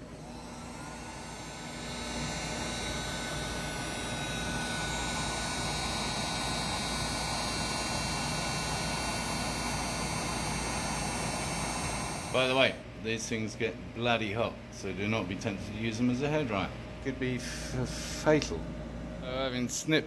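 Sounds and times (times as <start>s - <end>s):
heat gun blowing air: 0.0s - 12.6s
fan motor whine: 0.0s - 20.0s.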